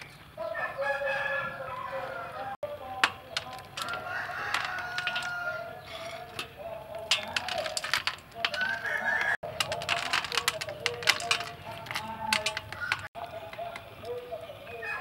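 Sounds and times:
rooster crowing: 0.4s - 2.6s, 3.8s - 5.9s, 8.6s - 9.4s, 14.4s - 15.0s
peanuts clicking on metal tray: 2.6s - 14.4s.

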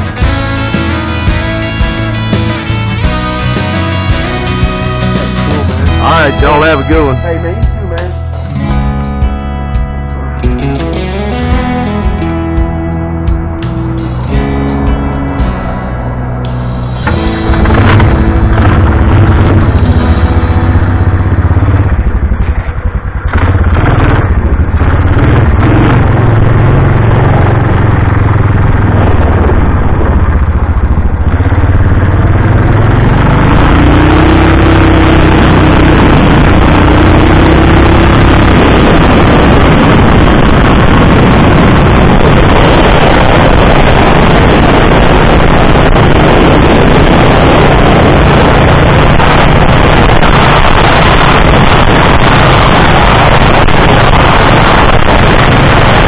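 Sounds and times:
wind noise on microphone: 11.7s - 56.0s.

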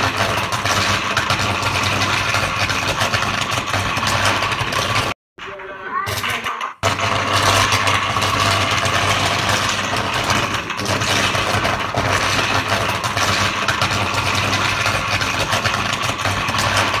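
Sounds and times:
diesel generator engine running: 6.8s - 17.0s.

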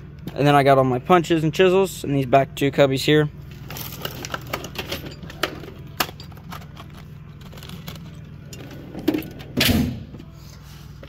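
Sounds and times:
metal tools clinking and rattling: 3.5s - 9.6s
metal drawers shutting and opening: 7.5s - 10.3s.

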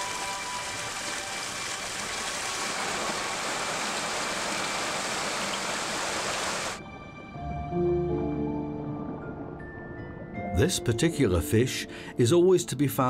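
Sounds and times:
stream rushing over rocks: 0.0s - 6.8s.

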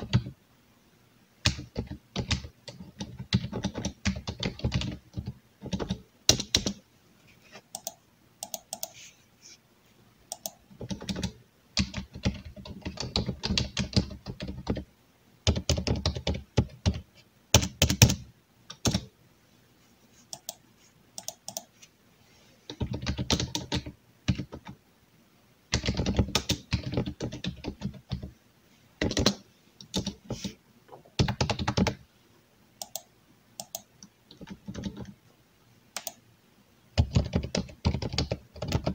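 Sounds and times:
computer keyboard typing: 1.4s - 6.8s, 7.7s - 9.1s, 10.3s - 14.9s, 15.5s - 19.1s, 20.3s - 20.6s, 21.2s - 21.7s, 22.7s - 24.8s, 25.7s - 28.3s, 29.0s - 30.6s, 31.2s - 32.0s, 32.8s - 35.2s, 36.0s - 36.2s, 37.0s - 38.9s.

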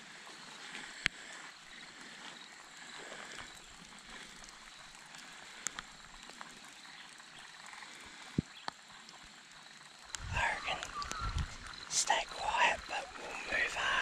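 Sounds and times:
faint ticks: 0.6s - 14.0s
person whispering: 10.2s - 14.0s.

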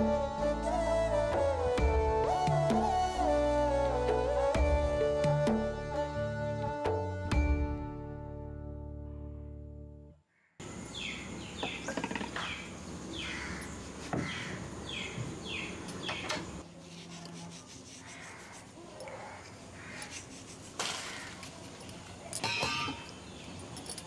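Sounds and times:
outdoor ambience: 0.0s - 24.0s
bird chirping: 10.4s - 16.6s.

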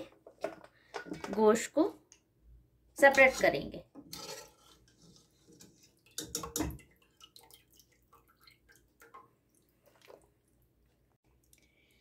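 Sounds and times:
broth dripping and splashing: 5.1s - 11.8s.

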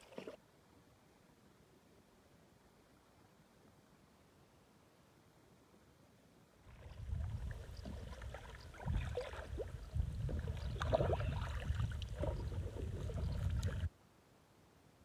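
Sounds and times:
paddle strokes splashing: 0.0s - 0.4s, 6.7s - 13.9s.

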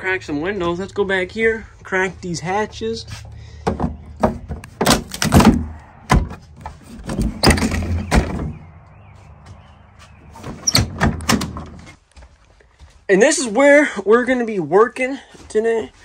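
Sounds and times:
hatch clunks and rattles: 3.6s - 8.7s, 10.3s - 12.0s.

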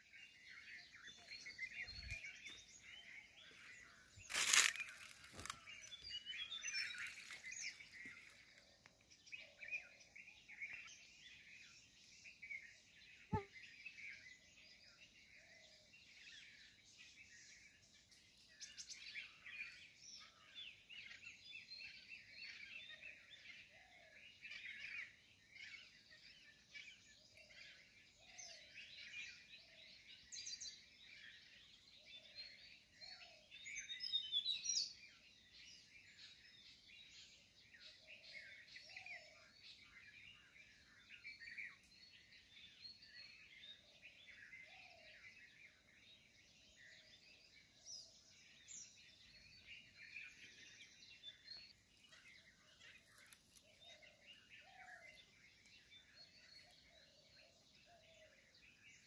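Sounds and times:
small birds chirping: 0.0s - 59.0s
low soft bird call: 13.1s - 14.0s.

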